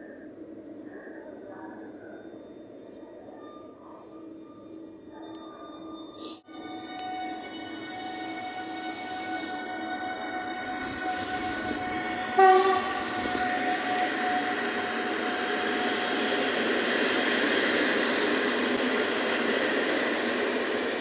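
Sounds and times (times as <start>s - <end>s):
train rolling past: 0.0s - 21.0s
train horn blast: 10.0s - 15.2s.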